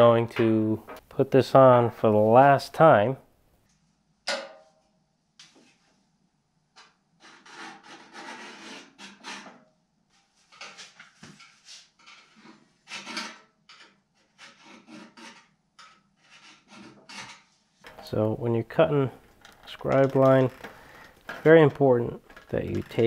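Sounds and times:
sheet steel scraping on steel: 7.2 - 9.6, 10.5 - 17.6.

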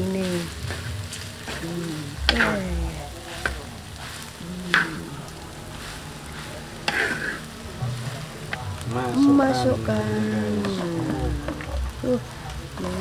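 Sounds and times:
food frying in a pan: 0.0 - 13.0
spatula scraping a pan: 0.4 - 8.6.

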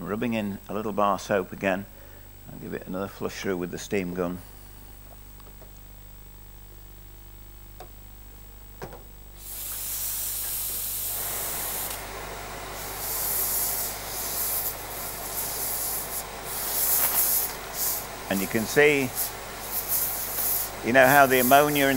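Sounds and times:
steam gun hissing: 9.4 - 21.9.

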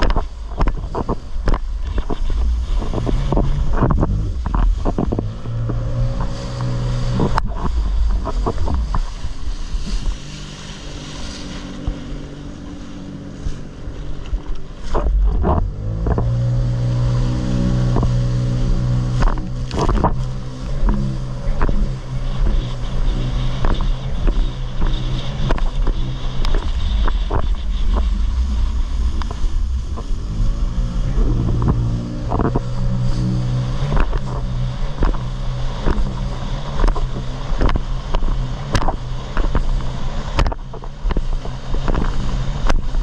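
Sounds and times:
hull slaps and spray: 0.0 - 43.0
jet ski engine running: 0.0 - 43.0
wind buffeting microphone: 0.0 - 43.0.

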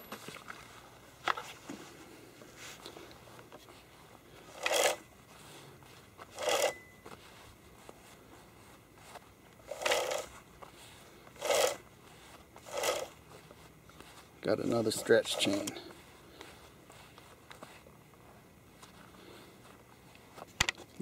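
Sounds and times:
saw chain rattling rasp: 4.5 - 5.0, 6.3 - 6.8, 9.7 - 10.3, 11.4 - 11.8, 12.6 - 13.1.

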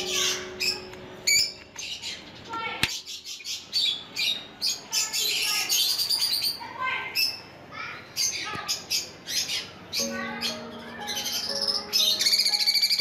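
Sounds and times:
background music with held notes: 0.0 - 2.3, 10.0 - 13.0
lovebirds chirping and squawking: 0.0 - 13.0.

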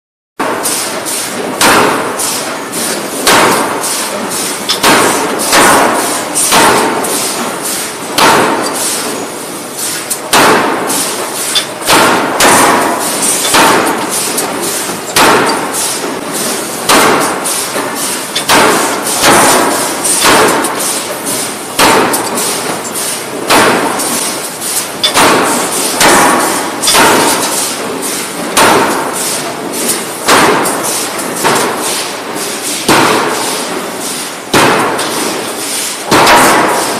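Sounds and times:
forging hammer striking steel: 0.4 - 36.9.

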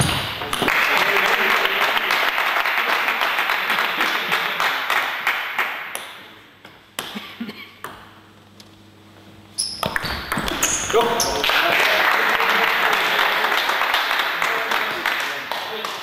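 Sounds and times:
spectators applauding: 0.0 - 6.0, 10.3 - 16.0.

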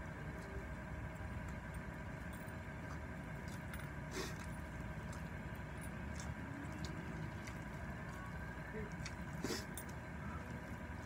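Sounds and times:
low background hum: 0.0 - 11.0
person chewing noodles: 2.8 - 11.0.

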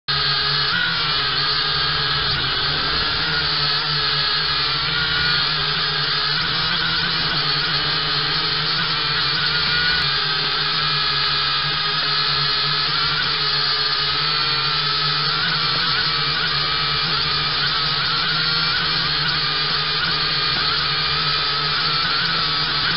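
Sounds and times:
drone propellers whining: 0.1 - 22.9.

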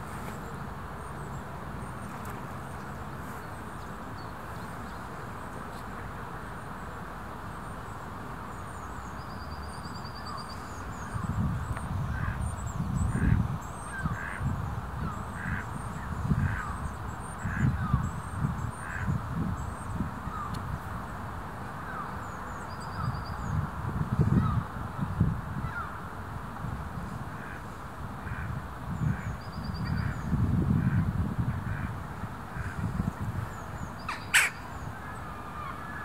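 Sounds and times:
steady background hiss: 0.0 - 36.0
wind gusting on microphone: 10.8 - 21.1, 21.9 - 36.0
bird calling repeatedly: 34.0 - 36.0.

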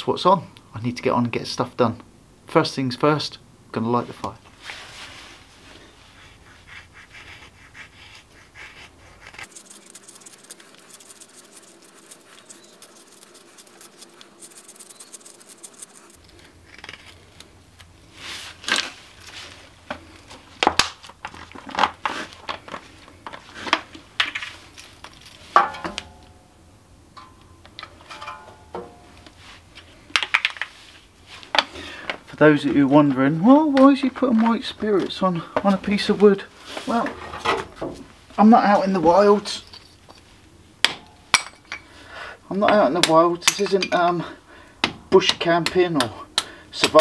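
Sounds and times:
knife scraping kindling: 6.4 - 17.4.

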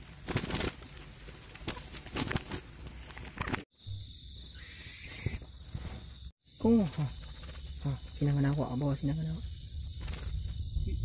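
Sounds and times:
dry grass and cloth rustling: 0.0 - 3.6
high-pitched tone with hiss: 3.8 - 11.0.

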